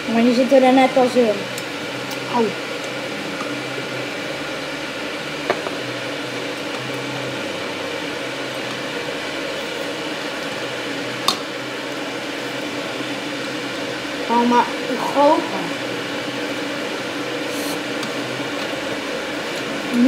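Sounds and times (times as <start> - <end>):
mechanical hum with hiss: 0.0 - 20.0.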